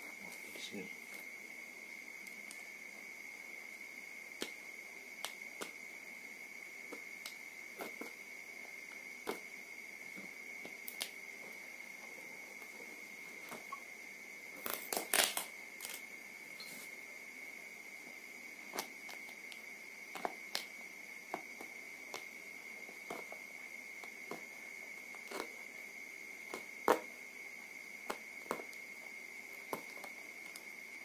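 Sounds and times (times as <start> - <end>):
faint high-pitched whine: 0.0 - 31.0
tape crackling: 10.6 - 11.2, 14.6 - 16.1, 18.7 - 25.6.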